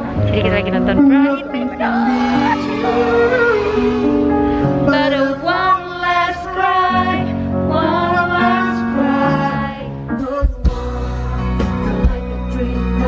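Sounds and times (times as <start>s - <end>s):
live band music: 0.0s - 5.6s, 9.0s - 13.0s
person singing slow melody: 8.2s - 13.0s.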